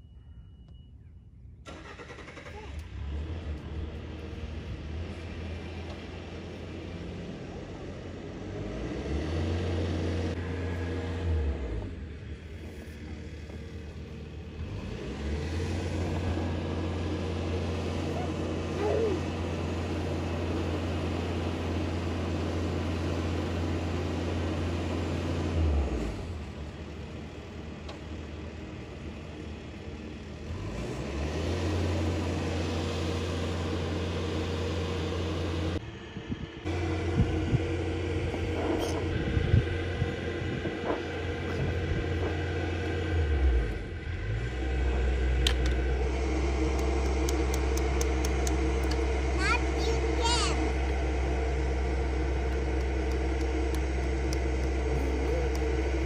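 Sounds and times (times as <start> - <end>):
electric motor hum: 44.4 - 56.0.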